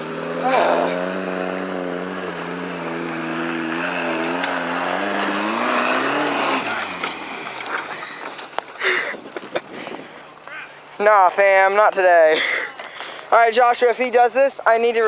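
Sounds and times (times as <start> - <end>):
engine revving under load: 0.0 - 8.6.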